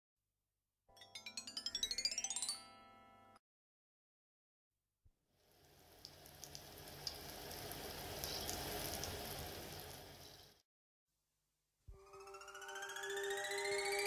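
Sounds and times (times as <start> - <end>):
hissing crackling noise effect: 5.5 - 10.6.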